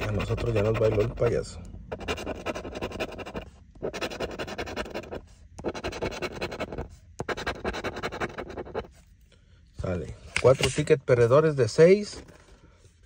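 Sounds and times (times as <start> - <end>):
metal tool scraping ticket: 0.0 - 1.2.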